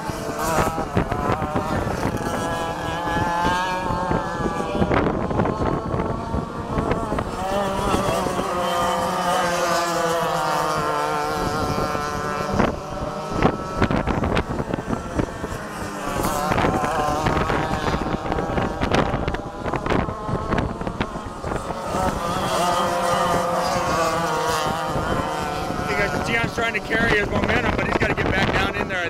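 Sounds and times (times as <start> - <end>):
kart engines racing: 0.0 - 29.0
wind crackling on microphone: 0.0 - 29.0.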